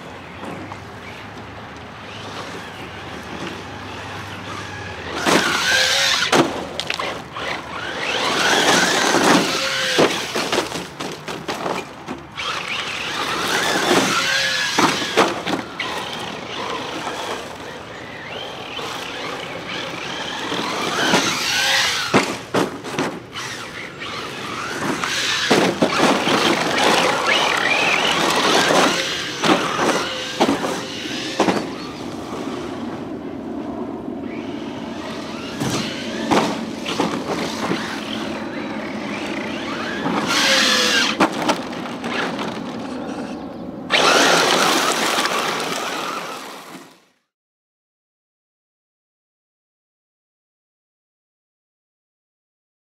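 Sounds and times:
tyres scrabbling on dirt and gravel: 0:00.2 - 0:32.9, 0:34.3 - 0:47.0
rc car motor whine: 0:02.0 - 0:10.6, 0:12.4 - 0:22.5, 0:23.3 - 0:32.8, 0:34.2 - 0:47.0
knocks from landings and bumps: 0:35.5 - 0:37.9.

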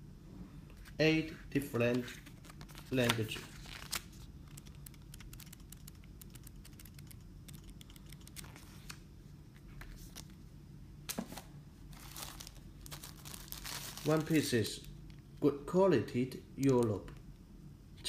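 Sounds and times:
booklet pages flipping: 0:00.7 - 0:10.4
paper rustling: 0:00.8 - 0:04.7, 0:11.1 - 0:14.5.

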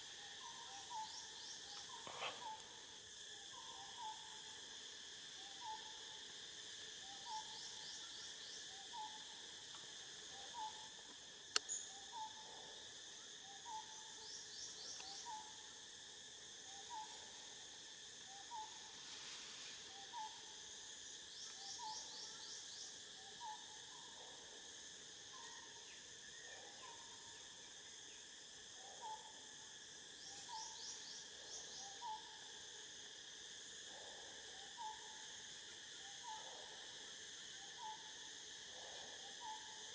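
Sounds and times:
high insect drone: 0:00.0 - 0:39.9
bird hooting: 0:01.9 - 0:02.7.

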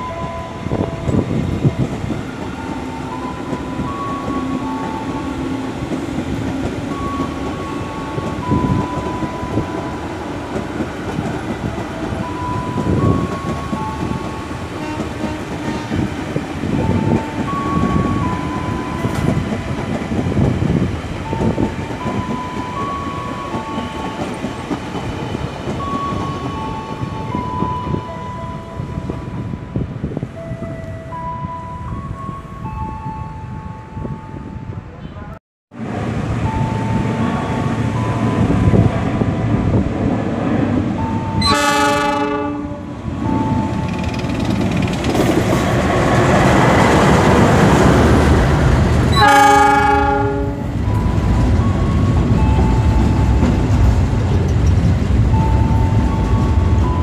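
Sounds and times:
slow melody of high notes: 0:00.0 - 0:10.4, 0:11.7 - 0:15.0, 0:16.7 - 0:34.9, 0:49.2 - 0:53.7
train wheels clattering over rail joints: 0:43.7 - 0:49.2.

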